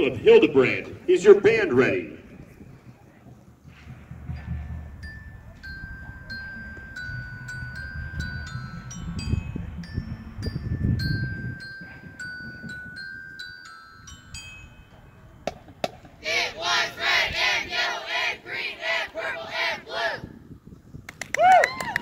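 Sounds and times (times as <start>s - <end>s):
mallet percussion melody: 4.3s - 15.6s
voices shouting: 16.2s - 20.3s.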